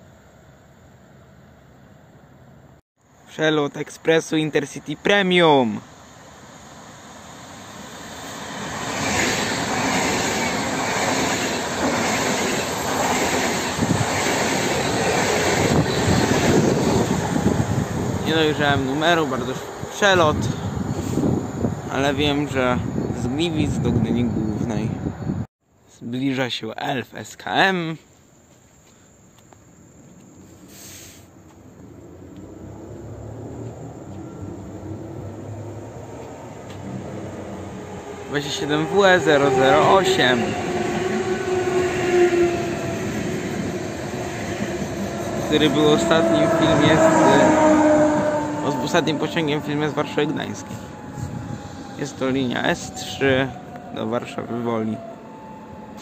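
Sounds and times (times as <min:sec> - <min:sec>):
train wheels rushing on rails: 0:06.3 - 0:24.0, 0:33.5 - 0:54.3
brief hiss: 0:30.5 - 0:31.4.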